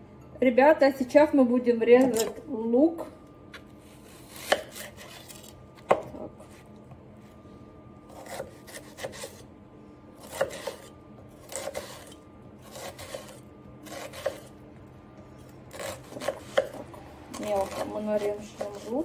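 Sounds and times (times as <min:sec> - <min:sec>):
knife slicing onion on board: 0:03.5 - 0:06.6, 0:08.1 - 0:09.5, 0:10.2 - 0:14.6, 0:15.7 - 0:19.0.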